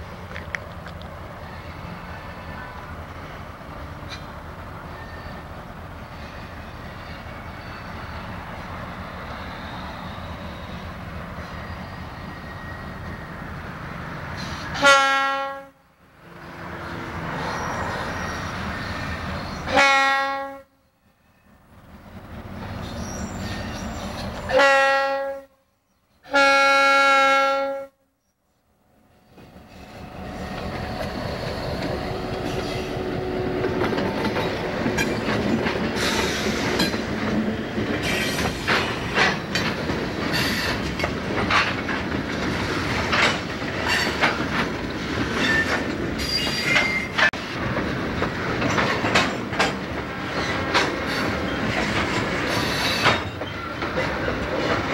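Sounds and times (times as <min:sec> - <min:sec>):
locomotive engine rumbling: 0:00.0 - 0:15.3, 0:28.8 - 0:54.9
locomotive air horn blasts: 0:14.7 - 0:15.8, 0:19.7 - 0:20.8, 0:24.5 - 0:25.6, 0:26.2 - 0:28.1.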